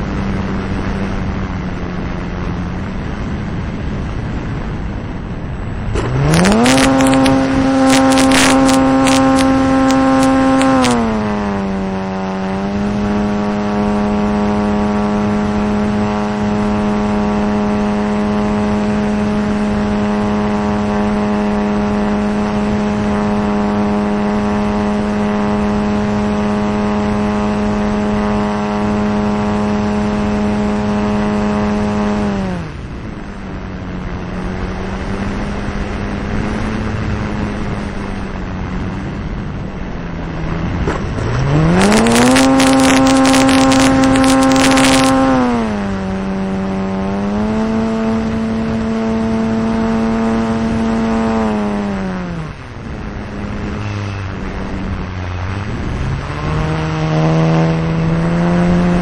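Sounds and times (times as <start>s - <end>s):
sharp clicks: 6.0s - 11.0s
model plane motor: 6.0s - 32.6s, 40.8s - 52.6s.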